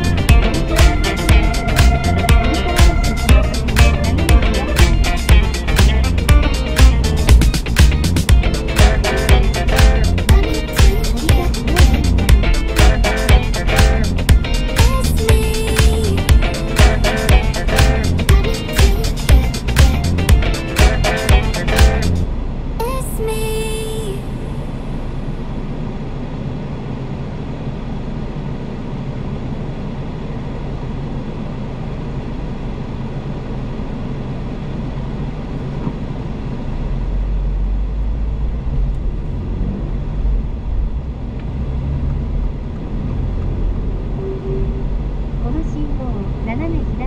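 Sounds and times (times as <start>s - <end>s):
tyre and road rumble: 0.0s - 10.5s
car engine: 0.0s - 46.8s.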